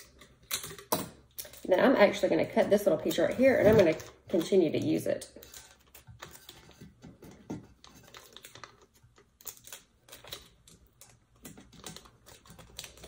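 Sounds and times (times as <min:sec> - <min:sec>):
faint clicks and crackles of tape: 0:03.8 - 0:13.0.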